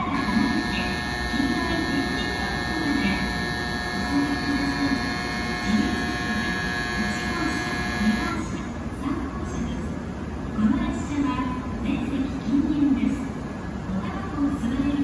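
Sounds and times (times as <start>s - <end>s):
electronic departure buzzer: 0.0s - 8.6s.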